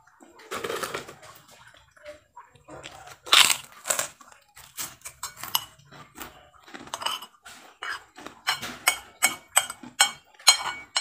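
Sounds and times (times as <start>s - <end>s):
cutlery clinking against a dish: 4.8s - 11.0s.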